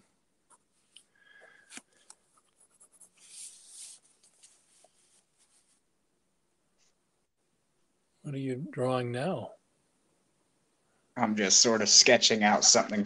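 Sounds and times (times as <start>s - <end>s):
pencil scratching on paper: 2.3s - 5.8s.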